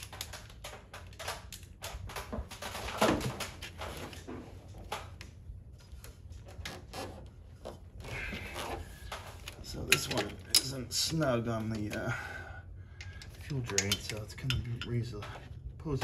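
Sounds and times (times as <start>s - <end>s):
hand tools clanking on metal: 9.7s - 12.1s, 13.0s - 16.0s.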